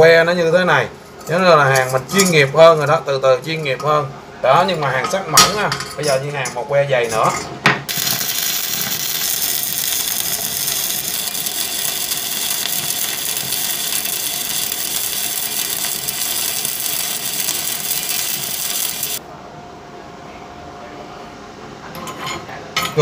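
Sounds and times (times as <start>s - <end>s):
welding arc crackling: 7.9s - 19.2s.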